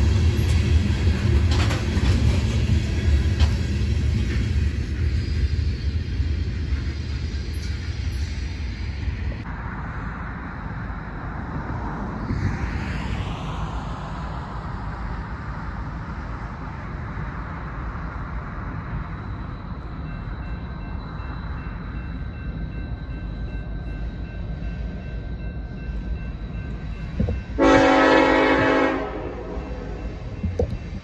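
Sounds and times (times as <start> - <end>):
train cars rumbling: 0.0 - 31.0
crossing bell ringing: 19.2 - 31.0
locomotive air horn blast: 27.6 - 30.0.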